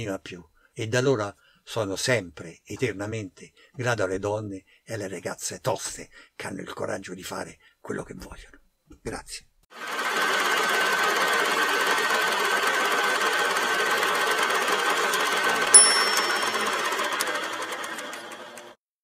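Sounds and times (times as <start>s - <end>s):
fast mechanical clatter: 9.8s - 18.8s.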